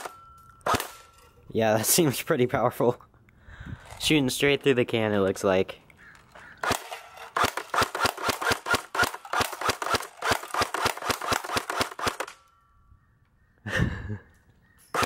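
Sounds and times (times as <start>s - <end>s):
airsoft gun shots: 6.6s - 12.4s.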